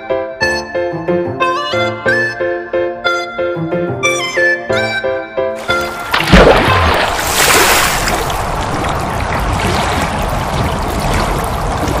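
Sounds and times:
rushing splashing water: 0:05.6 - 0:12.0.

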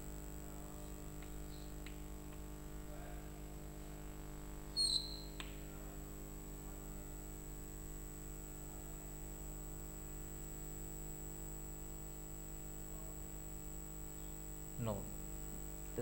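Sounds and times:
chalk squeak: 0:04.8 - 0:05.4.

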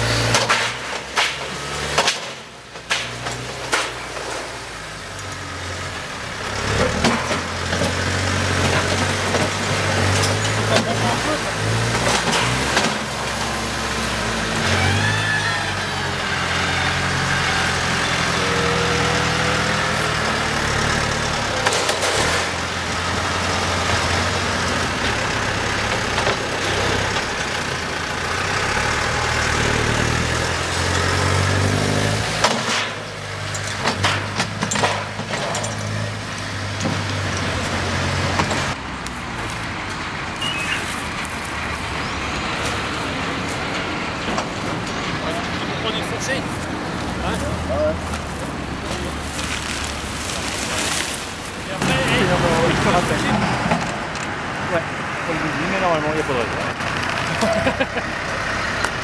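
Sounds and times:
tractor diesel engine running: 0:00.0 - 0:59.0
knocks and clattering: 0:00.2 - 0:04.5, 0:06.5 - 0:13.6, 0:21.1 - 0:22.8, 0:32.2 - 0:38.8, 0:52.1 - 0:54.3.

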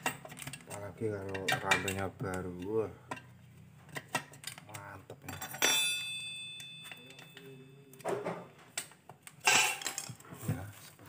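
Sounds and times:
sheet metal parts clinking: 0:00.0 - 0:10.4.

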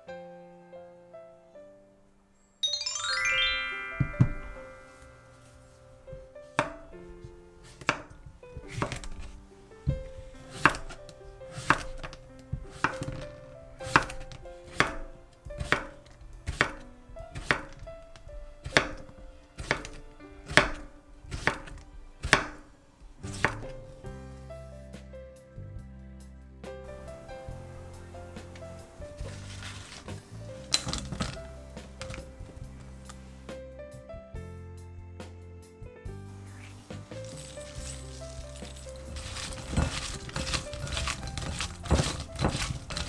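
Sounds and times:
soft background music: 0:00.0 - 0:43.0
knife chopping on cutting board: 0:07.7 - 0:09.3, 0:10.5 - 0:11.0, 0:11.6 - 0:16.8, 0:17.4 - 0:17.8, 0:18.6 - 0:19.0, 0:19.6 - 0:22.7, 0:23.3 - 0:23.7, 0:37.2 - 0:43.0.

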